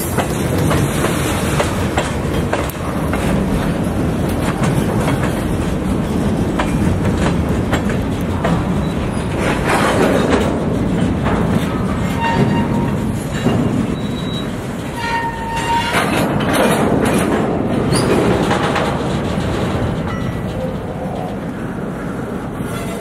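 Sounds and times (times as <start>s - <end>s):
wheels clattering over rail joints: 0.0s - 23.0s
high-pitched wheel squeals: 14.0s - 16.0s.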